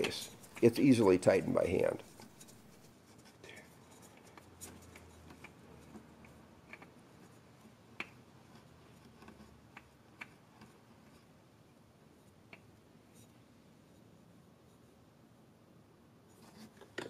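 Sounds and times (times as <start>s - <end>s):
oil filter clicks and rubs: 0.0s - 0.8s.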